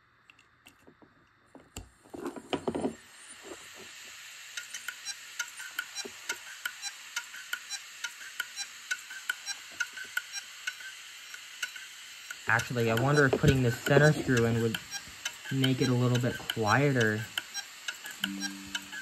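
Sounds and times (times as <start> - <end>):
hard drive whirring: 0.0 - 19.0
hard drive head clicking: 12.5 - 19.0.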